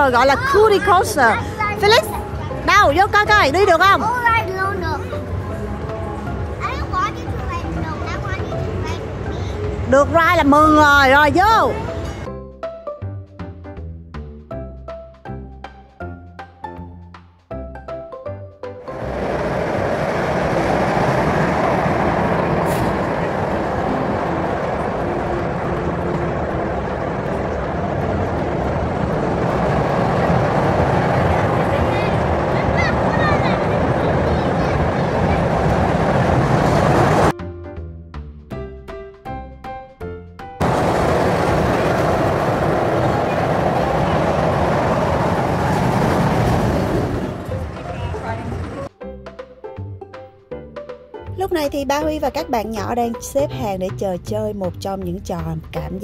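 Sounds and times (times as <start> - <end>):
roller coaster cars rumbling: 0.0 - 12.3, 18.8 - 37.4, 40.6 - 48.9.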